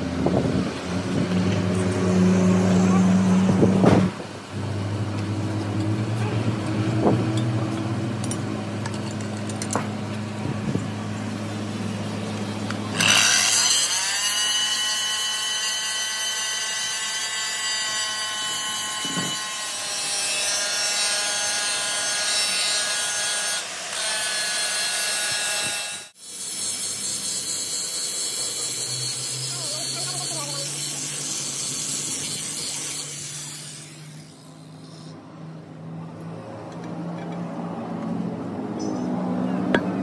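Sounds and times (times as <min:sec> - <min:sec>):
angle grinder grinding metal: 0:12.7 - 0:35.2.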